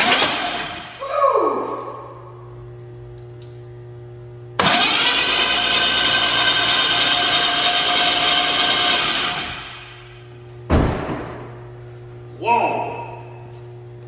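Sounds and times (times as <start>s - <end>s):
starter cranking engine: 4.6s - 9.6s.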